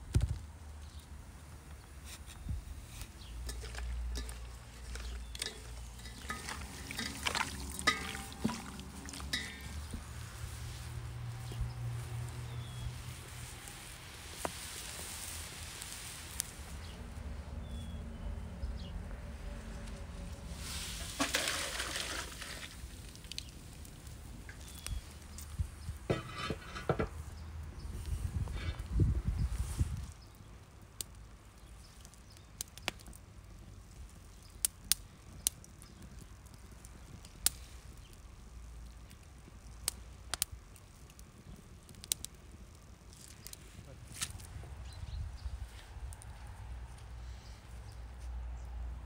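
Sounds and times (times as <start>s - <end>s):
wet squelches of mixing meat: 3.4s - 16.2s
water pouring into metal bucket: 3.6s - 9.9s, 20.6s - 23.4s.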